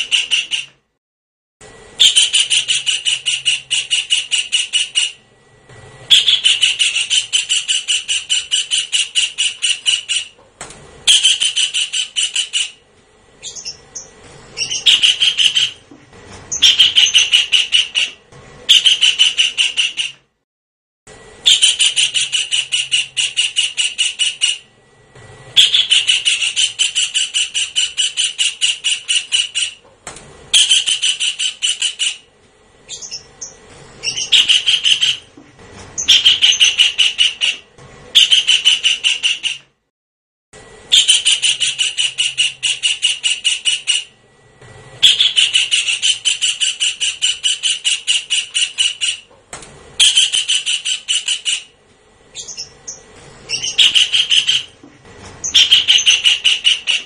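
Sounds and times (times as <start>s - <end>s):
kingfisher calling: 6.1s - 10.3s, 13.4s - 15.8s, 16.5s - 20.1s, 25.6s - 29.8s, 32.9s - 35.3s, 36.0s - 37.6s, 45.0s - 49.3s, 52.4s - 54.8s, 55.4s - 57.0s.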